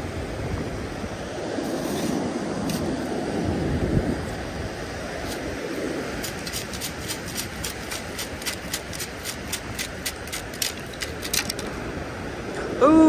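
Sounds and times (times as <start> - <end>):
metal sand scoop rattling: 6.2 - 11.8.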